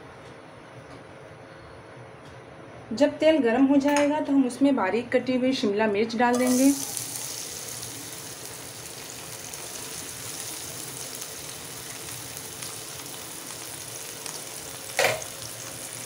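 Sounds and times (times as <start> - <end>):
pepper sizzling in hot oil: 6.3 - 16.0.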